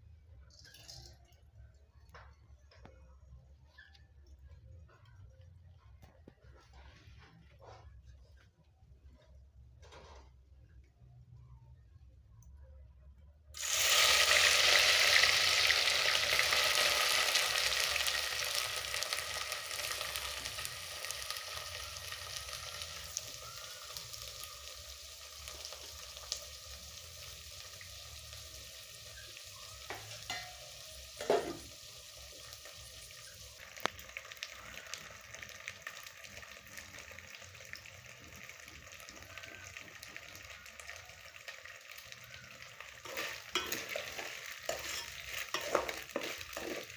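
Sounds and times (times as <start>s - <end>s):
fish sizzling in hot fat: 13.6s - 46.9s.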